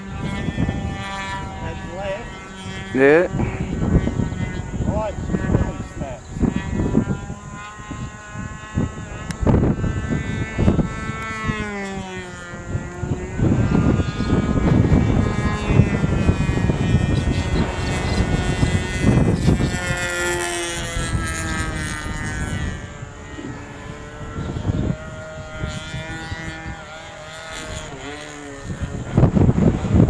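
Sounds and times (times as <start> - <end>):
model plane engine flying overhead: 0.0 - 30.0
wind rumble on microphone: 0.0 - 30.0.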